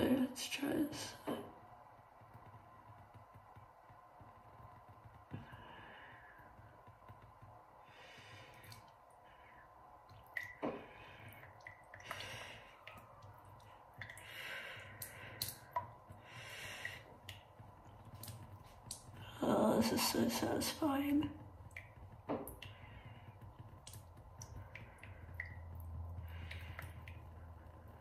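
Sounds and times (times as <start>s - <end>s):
dripping into a basin: 8.0s - 28.0s
breathy rushes of rinse: 10.6s - 17.3s.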